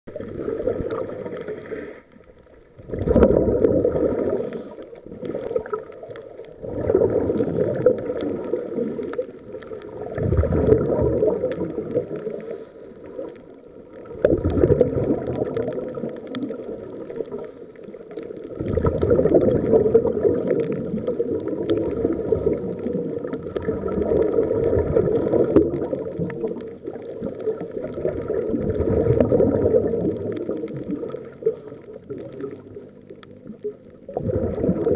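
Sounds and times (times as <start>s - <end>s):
underwater regulator breathing bubbles: 6.6s - 13.5s, 18.5s - 32.7s.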